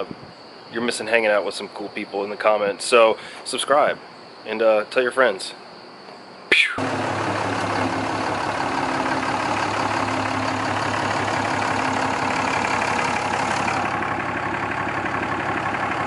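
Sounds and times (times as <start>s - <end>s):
pickup engine idling: 6.8s - 16.0s.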